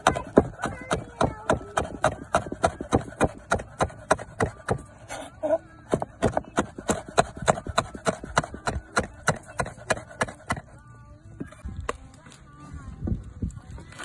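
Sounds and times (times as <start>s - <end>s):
knife chopping on cutting board: 0.0s - 4.8s, 5.9s - 10.6s.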